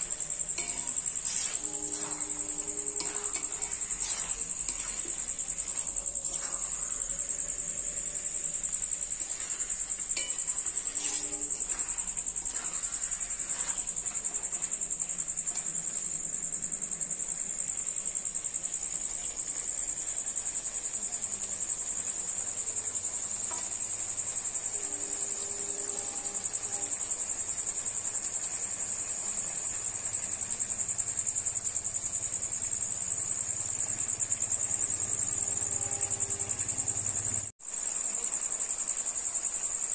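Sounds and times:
faint scrapes: 0.0s - 16.1s
cricket trilling: 0.0s - 39.9s.

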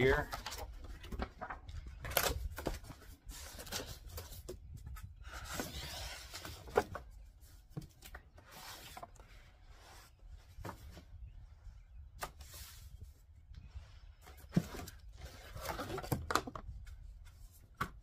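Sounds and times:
cardboard scraping and rustling: 0.1s - 11.1s, 14.2s - 16.5s.

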